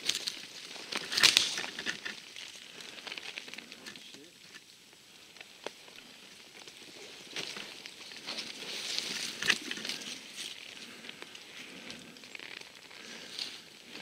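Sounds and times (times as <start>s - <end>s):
branches brushing past: 0.0s - 4.0s
footsteps through undergrowth: 0.0s - 4.5s, 5.3s - 14.0s
twigs and leaves crackling: 0.0s - 14.0s.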